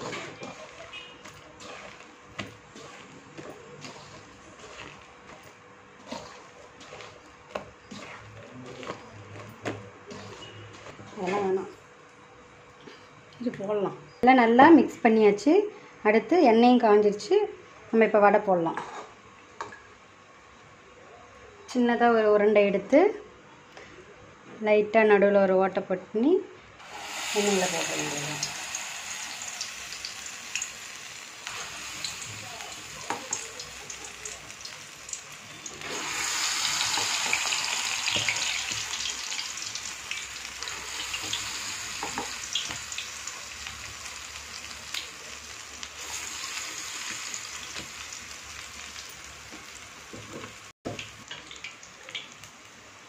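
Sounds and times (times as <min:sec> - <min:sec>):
batter sizzling in hot oil: 0:00.0 - 0:11.6, 0:26.8 - 0:53.0.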